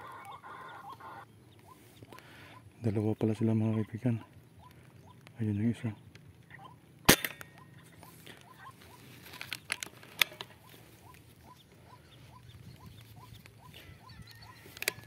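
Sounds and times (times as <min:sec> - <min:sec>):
air rifle shot: 0:07.1 - 0:07.6.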